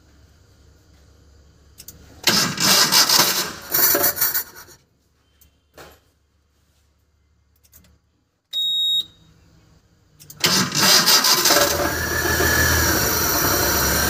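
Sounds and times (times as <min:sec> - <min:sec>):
starter motor cranking engine: 0:02.2 - 0:04.7, 0:10.3 - 0:14.0.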